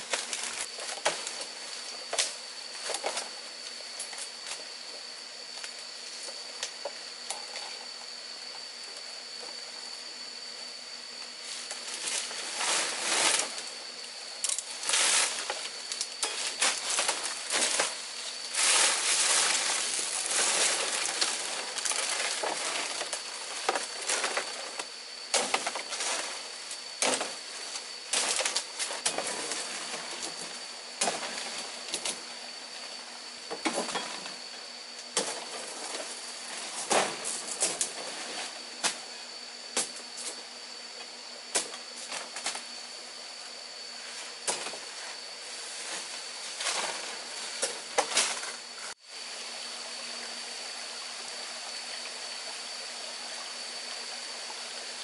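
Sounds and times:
palm fronds rustling: 0:00.0 - 0:04.8, 0:11.3 - 0:40.5, 0:43.9 - 0:49.0.

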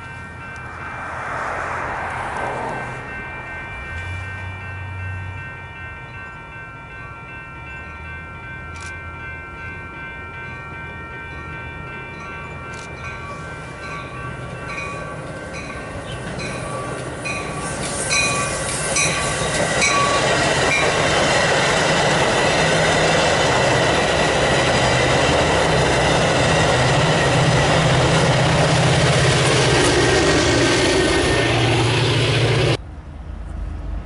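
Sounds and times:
train bell ringing: 0:00.0 - 0:32.5
diesel locomotive engine drone: 0:00.0 - 0:34.0
train wheels clattering on rails: 0:12.8 - 0:32.8.

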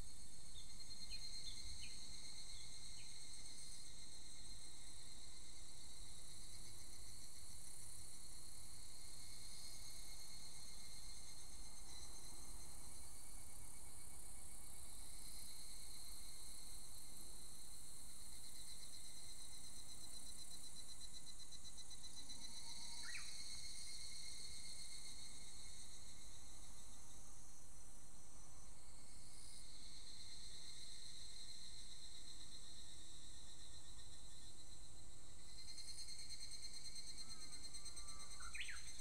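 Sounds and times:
cicadas trilling: 0:21.7 - 0:26.3, 0:35.5 - 0:39.0.

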